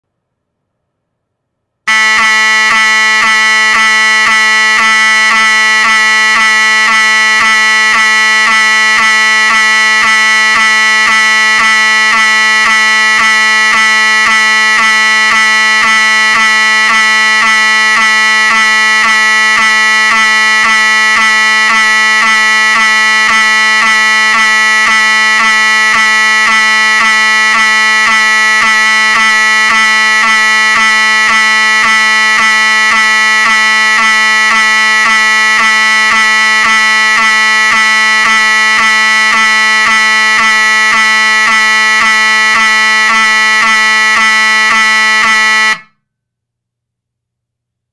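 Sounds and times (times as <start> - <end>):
fire alarm horn buzzing: 1.9 - 46.0.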